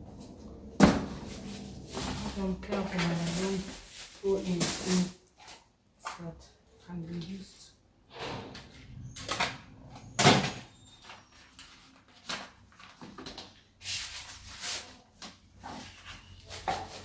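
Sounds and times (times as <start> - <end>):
rustling: 1.0 - 5.6.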